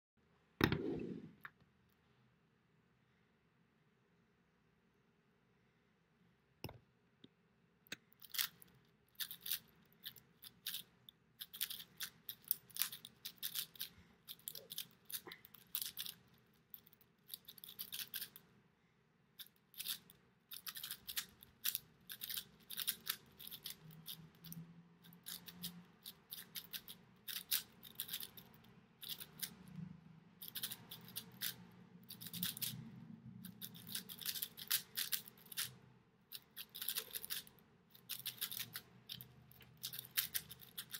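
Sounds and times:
speed cube clicking: 8.2s - 8.6s, 9.2s - 16.2s, 16.8s - 18.4s, 19.4s - 29.6s, 30.4s - 32.8s, 33.5s - 40.9s.

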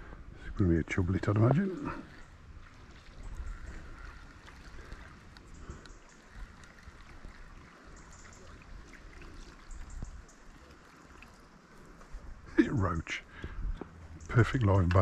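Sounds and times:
river water flowing: 0.9s - 15.0s
faint ticks: 4.9s - 6.9s.

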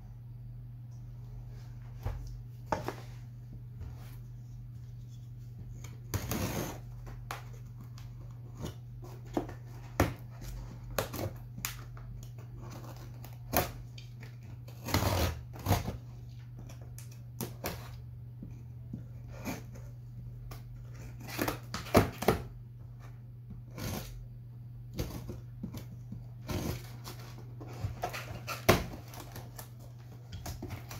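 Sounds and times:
steady low hum: 0.0s - 30.9s
knife cutting packing tape: 14.4s - 16.0s.

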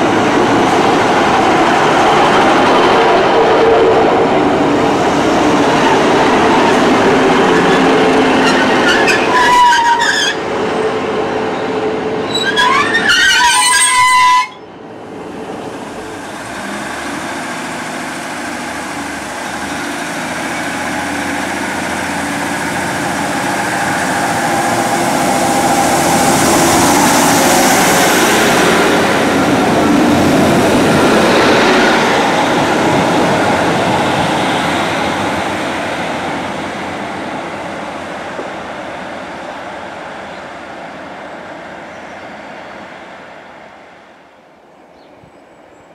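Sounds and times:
diesel train running: 0.0s - 44.6s
diesel train engines and wheels: 0.0s - 45.9s
high wheel squeals: 7.5s - 10.4s, 12.2s - 14.6s.

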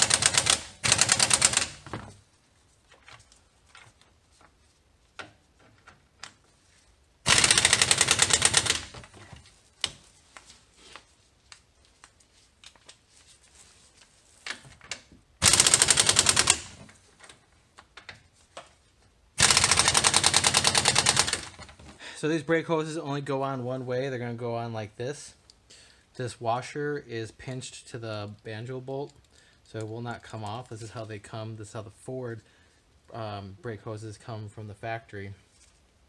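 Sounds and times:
pneumatic impact wrench hammering: 0.0s - 1.9s, 7.3s - 9.1s, 15.4s - 16.8s, 19.4s - 21.6s.

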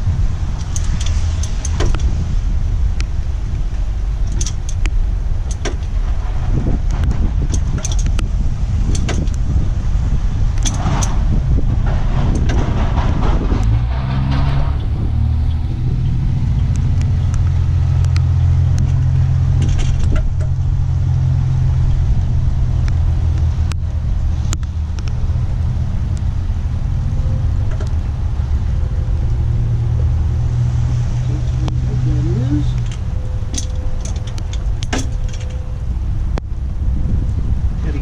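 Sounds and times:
low engine hum: 0.0s - 38.0s.

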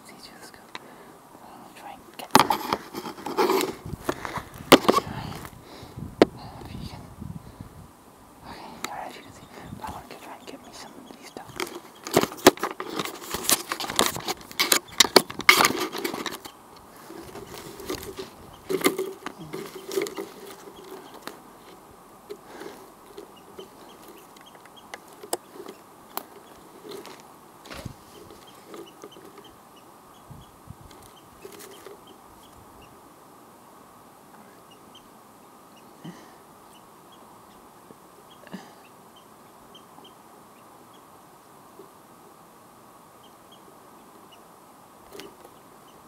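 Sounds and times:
bush leaves and branches rustling: 1.5s - 33.5s.

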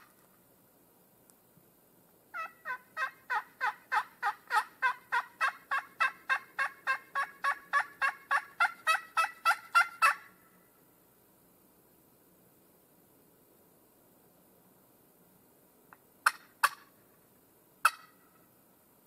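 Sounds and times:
turkey call hen yelps: 2.3s - 10.3s, 16.2s - 16.9s, 17.8s - 18.4s.

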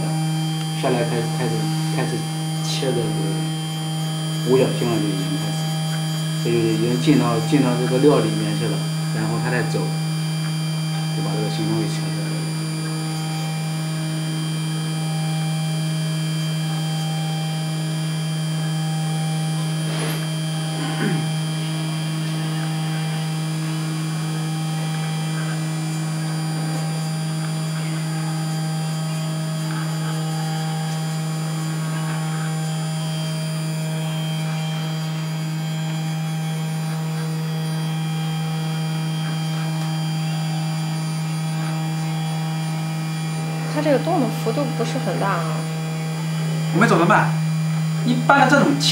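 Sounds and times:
milling machine spindle hum: 0.0s - 48.9s.

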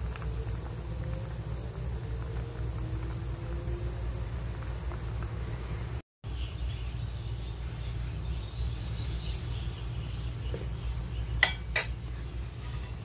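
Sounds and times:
soup boiling: 0.0s - 6.0s.

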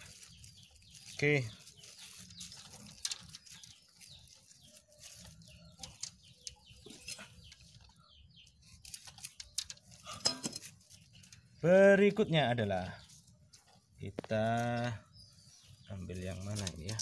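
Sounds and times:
bamboo sticks clicking and rustling: 0.0s - 11.6s, 13.2s - 14.9s, 16.0s - 17.0s
faint bird chirps: 0.0s - 17.0s.

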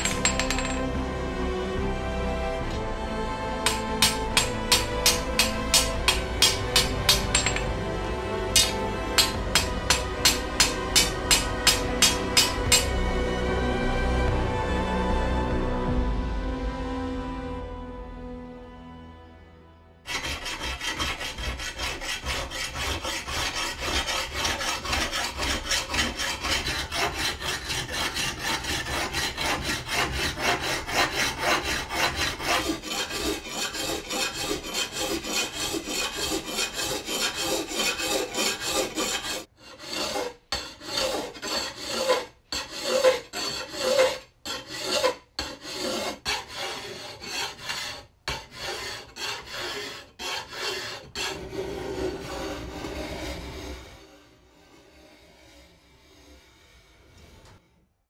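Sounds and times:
abrasive scraping sword blade: 0.0s - 0.9s, 3.7s - 7.8s, 8.5s - 13.0s, 20.1s - 51.5s.

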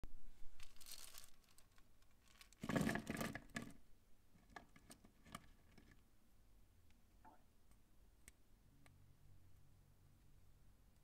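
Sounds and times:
plastic pieces clattering on table: 0.6s - 3.8s.

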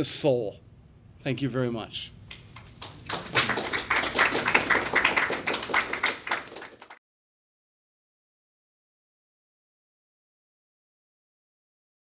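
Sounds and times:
small audience applauding: 2.5s - 7.0s.

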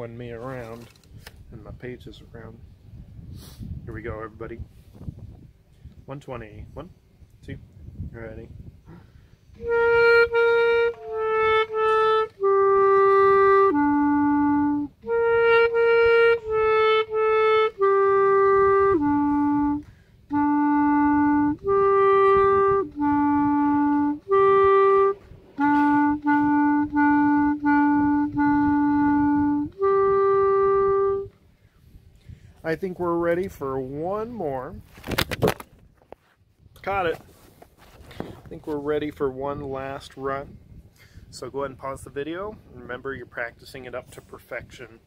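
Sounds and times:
solo clarinet melody: 9.5s - 31.5s.

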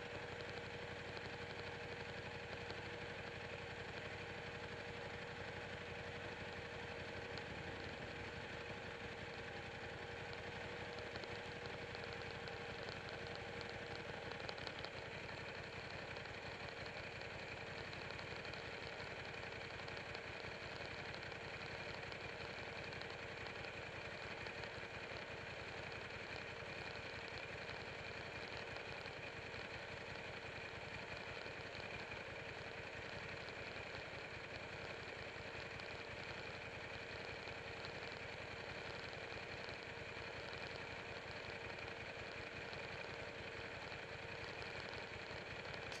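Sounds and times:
motorcycle engine idling: 0.0s - 46.0s.

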